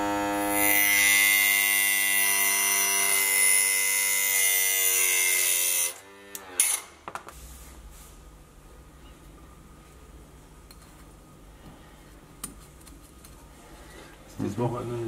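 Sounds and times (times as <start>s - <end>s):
electric grinder whining: 0.0s - 6.9s.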